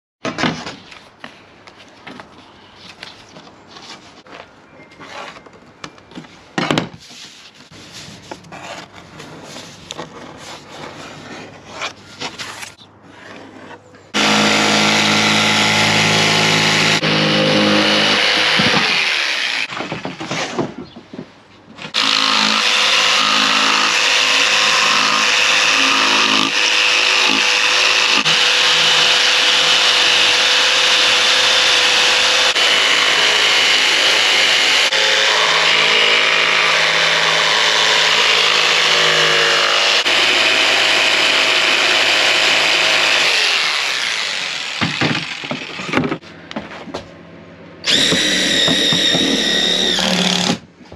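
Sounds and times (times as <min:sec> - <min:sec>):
jigsaw cutting plywood: 0:14.2 - 0:19.8, 0:21.9 - 0:46.2, 0:47.9 - 0:50.6
knocks and rubbing on plywood: 0:44.8 - 0:47.1.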